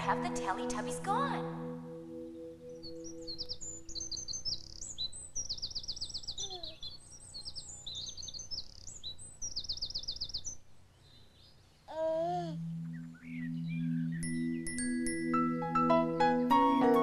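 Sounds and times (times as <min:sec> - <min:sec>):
birds chirping and twittering: 0:00.0 - 0:11.9, 0:12.6 - 0:16.7
rapid bird trills: 0:02.2 - 0:11.6.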